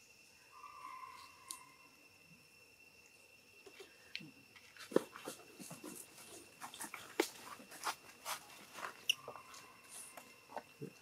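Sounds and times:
monkeys grooming and tussling: 0:04.6 - 0:11.0.

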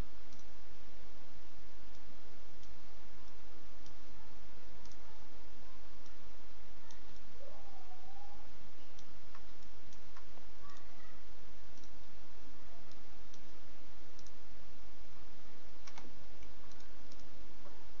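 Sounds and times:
computer mouse clicks: 0:04.8 - 0:05.0, 0:08.9 - 0:10.9, 0:11.7 - 0:12.1, 0:12.9 - 0:14.4, 0:15.8 - 0:17.3.

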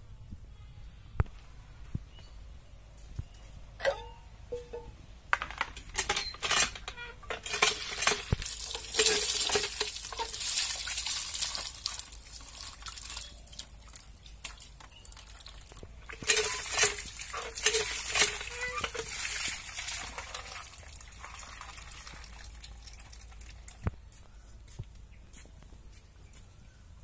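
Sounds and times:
water gushing and splashing: 0:07.6 - 0:23.5.

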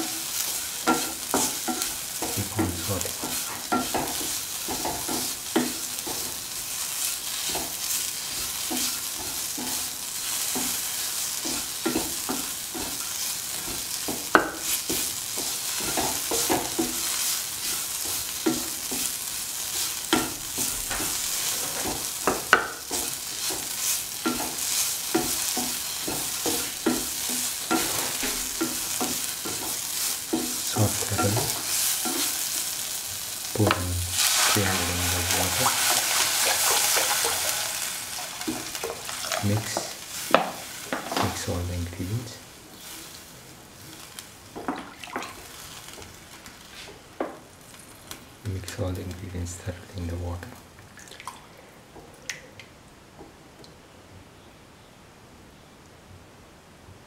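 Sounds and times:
food sizzling in hot oil: 0:00.0 - 0:50.2
utensil knocking against pan: 0:14.1 - 0:15.0
utensil stirring and scraping: 0:19.7 - 0:32.6, 0:33.6 - 0:41.5.

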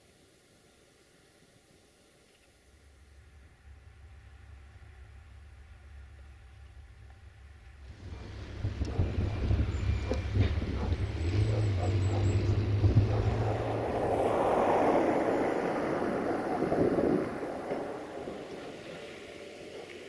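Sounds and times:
heavy low engine rumble: 0:02.8 - 0:20.0
wind buffeting microphone: 0:07.9 - 0:20.0.

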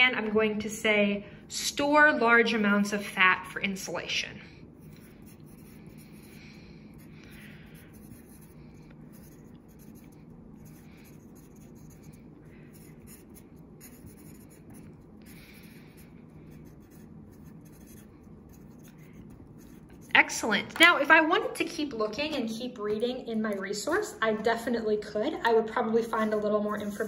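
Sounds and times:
pencil writing on paper: 0:04.8 - 0:20.3, 0:26.1 - 0:27.0.

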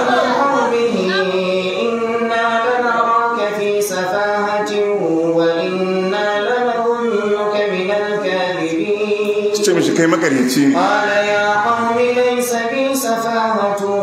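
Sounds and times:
man chanting melodically: 0:09.5 - 0:11.4.

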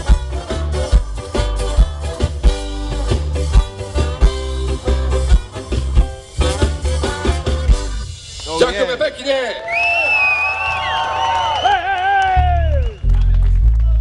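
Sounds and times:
horn section holding notes: 0:00.0 - 0:08.2
ska band playing live: 0:00.0 - 0:09.4.

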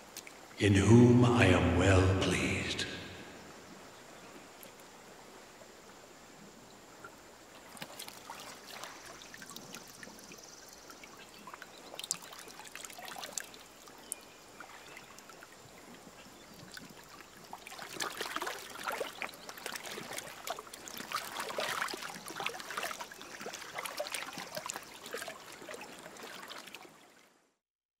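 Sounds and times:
river water splashing: 0:07.2 - 0:27.3.

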